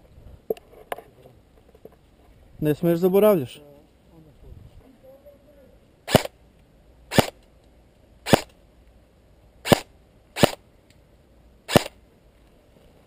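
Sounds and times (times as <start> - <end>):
airsoft rifle shots: 6.1 - 6.4, 7.1 - 7.4, 8.2 - 8.5, 9.6 - 10.6, 11.7 - 12.0.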